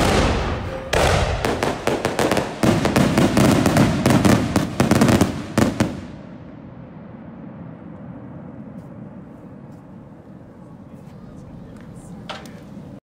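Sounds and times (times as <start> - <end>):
firework crackling pops: 0.0 - 6.1.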